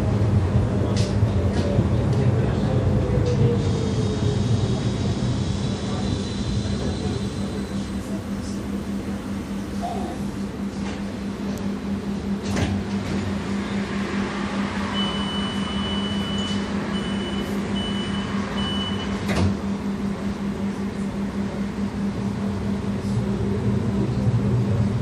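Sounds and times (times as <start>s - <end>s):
tram electrical hum: 0.0s - 25.0s
door warning beeps: 14.9s - 19.3s.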